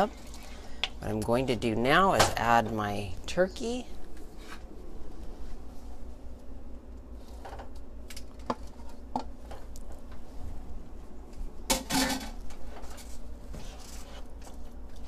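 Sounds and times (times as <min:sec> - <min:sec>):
low hum: 0:00.1 - 0:15.0.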